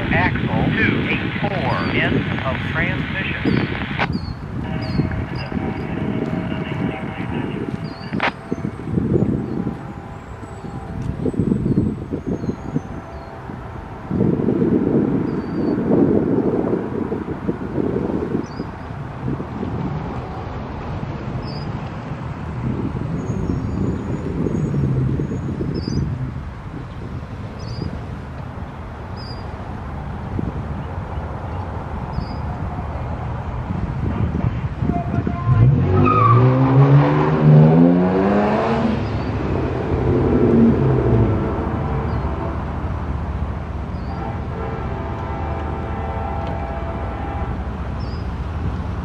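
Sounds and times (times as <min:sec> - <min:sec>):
vehicle engine rumble: 0:00.0 - 0:49.0
car engine driving past: 0:35.6 - 0:42.8.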